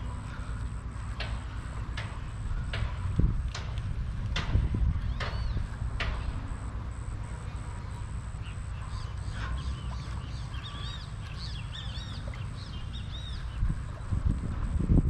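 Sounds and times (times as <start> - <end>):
steady low rumble: 0.0 - 15.0
birds chirping: 4.8 - 14.3.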